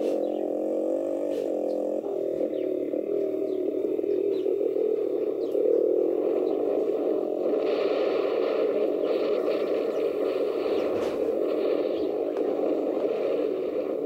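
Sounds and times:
dirt bike engine running: 0.0 - 2.7
wind buffeting microphone: 0.0 - 14.0.

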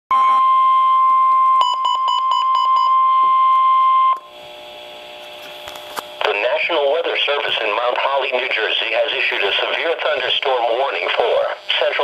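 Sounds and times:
faint radio hum: 5.0 - 12.0.

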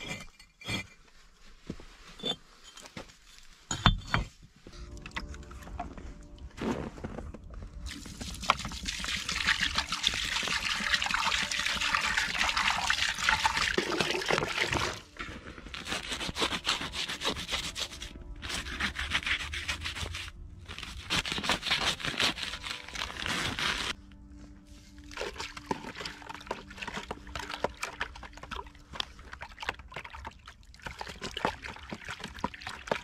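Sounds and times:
water pouring into plastic bucket: 7.9 - 15.1, 25.1 - 33.0
paper sack tearing: 20.7 - 24.0.

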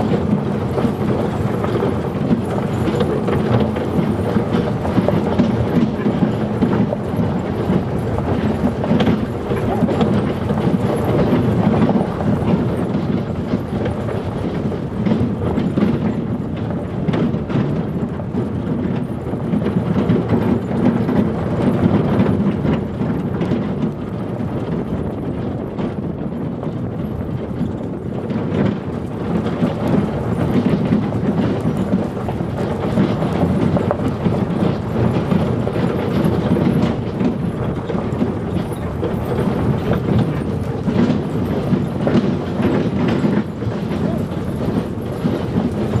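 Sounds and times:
cart rattling: 0.0 - 46.0
dogs' feet pattering: 0.0 - 46.0
wheels crunching on gravel: 29.0 - 46.0.

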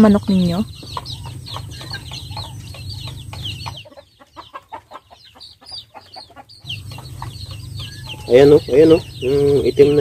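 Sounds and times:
steady low hum: 0.0 - 3.9, 6.5 - 10.0
chickens clucking: 0.0 - 10.0.

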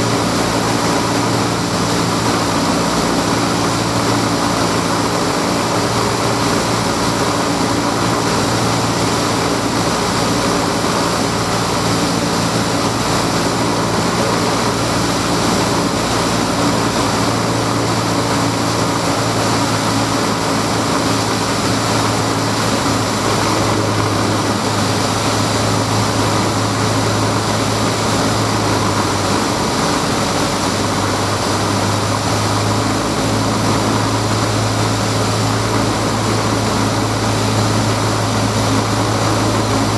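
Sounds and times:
light aircraft engine drone: 0.0 - 39.9.

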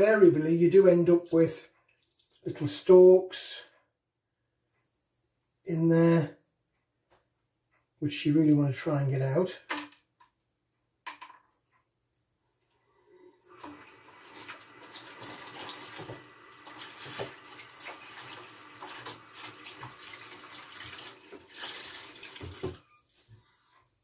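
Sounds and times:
water sloshing in a bowl: 1.4 - 2.5, 13.6 - 23.0.

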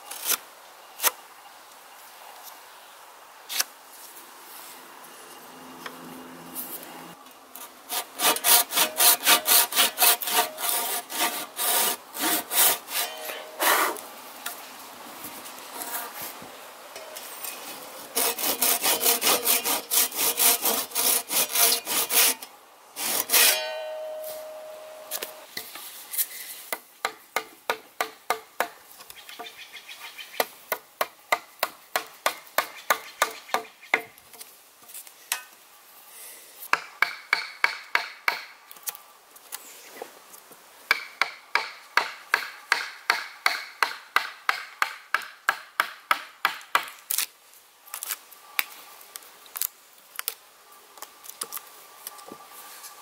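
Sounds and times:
hand saw cutting log: 7.6 - 14.0, 18.2 - 24.0
sharp knock and ring: 23.5 - 25.4.

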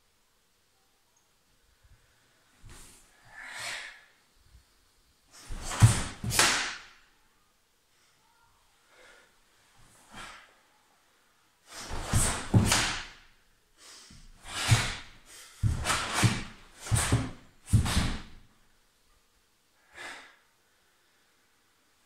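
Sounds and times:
uniform snapping and swishing: 5.3 - 7.0, 11.7 - 13.3, 14.1 - 18.4
bare feet on wooden floor: 5.4 - 6.8, 11.8 - 13.1, 14.1 - 18.4.

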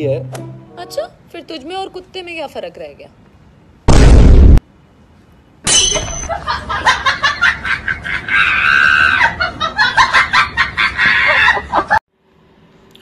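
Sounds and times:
high-pitched laughter: 6.3 - 12.0.

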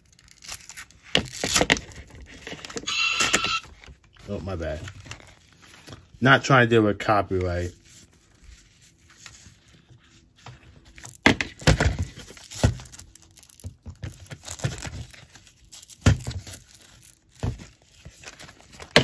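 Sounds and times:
velcro ripping: 0.0 - 2.4
fabric and plastic handling: 0.0 - 19.0.

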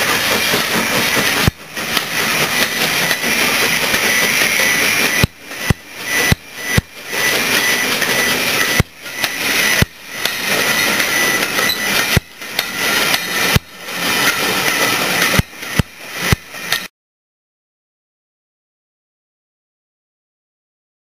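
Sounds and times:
train coaches rolling past: 0.0 - 15.4.

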